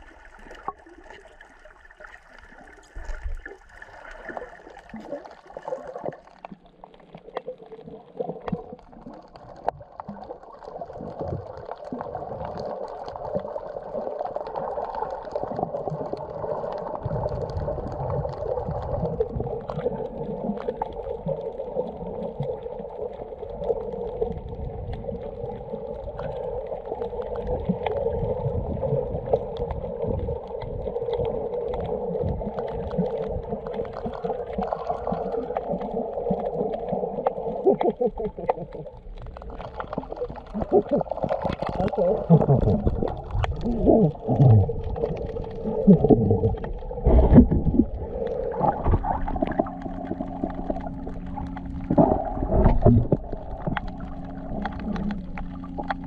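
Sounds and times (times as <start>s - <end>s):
muffled water gurgling: 0.0s - 56.0s
low rumble: 41.9s - 56.0s.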